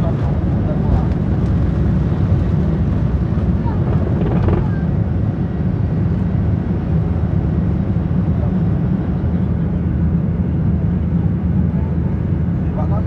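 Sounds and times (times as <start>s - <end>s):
jet engine drone in cabin: 0.0s - 13.0s.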